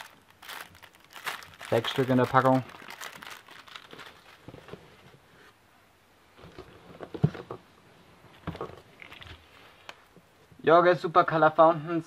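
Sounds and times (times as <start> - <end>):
plastic wrapping rustling: 0.0 - 5.2, 8.4 - 9.6.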